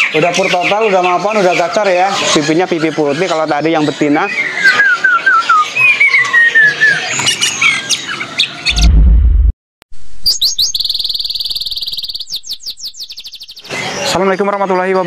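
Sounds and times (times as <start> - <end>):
songbird singing: 0.0 - 8.8, 10.2 - 15.0
deep bass hit: 8.7 - 9.5.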